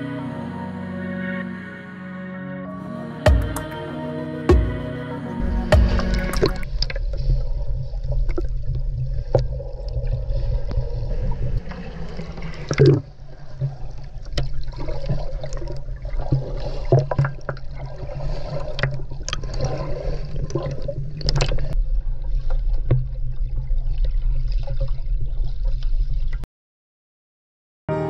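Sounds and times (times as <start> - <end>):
steady low rumble: 4.5 - 11.8
water sloshing and gurgling: 4.6 - 26.4.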